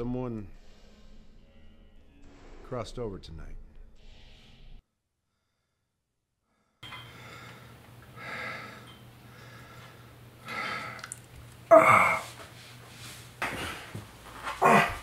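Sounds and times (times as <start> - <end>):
man breathing heavily: 4.0 - 11.1
man crying out in pain: 11.7 - 12.3, 14.6 - 15.0.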